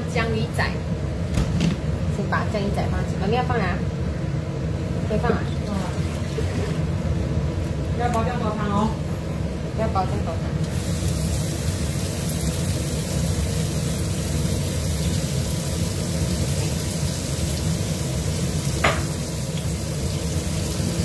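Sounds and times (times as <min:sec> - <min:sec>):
fish sizzling in hot oil: 0:10.6 - 0:21.0.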